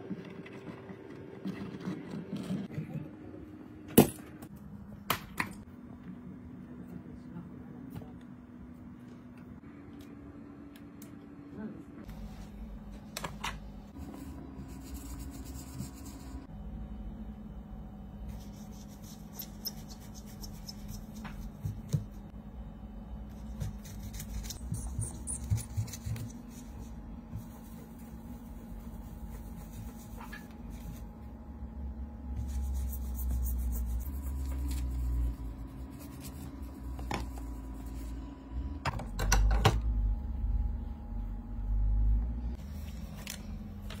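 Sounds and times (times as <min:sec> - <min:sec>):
steady low hum: 0:02.4 - 0:44.0.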